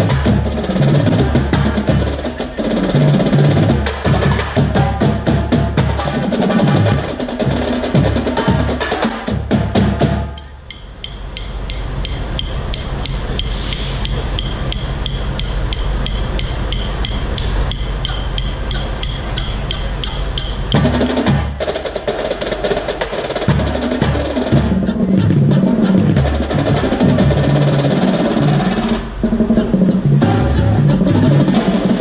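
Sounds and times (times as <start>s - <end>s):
marching drumline playing: 0.0s - 32.0s
woodblock-like click: 10.3s - 21.0s.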